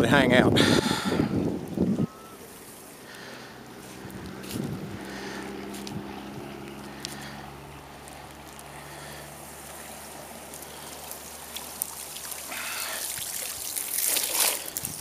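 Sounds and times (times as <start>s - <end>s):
water trickling off a net: 8.2s - 15.0s.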